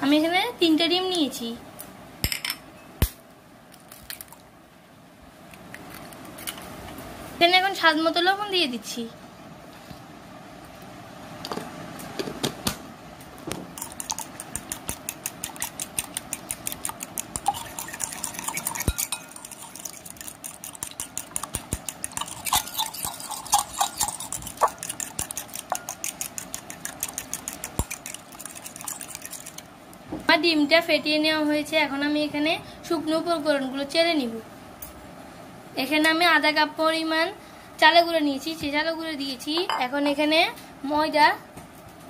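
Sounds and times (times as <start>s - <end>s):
fork beating eggs on a plate: 13.7s - 29.7s.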